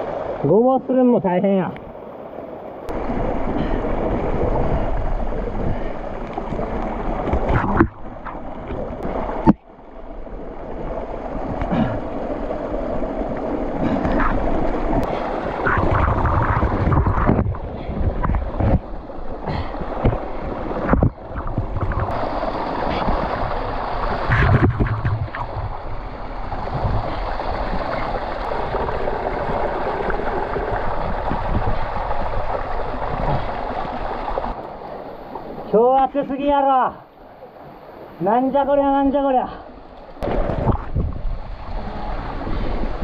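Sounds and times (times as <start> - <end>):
water rushing: 0.0 - 43.0
knocks and scrapes: 7.2 - 8.8, 20.8 - 22.2, 24.2 - 25.8.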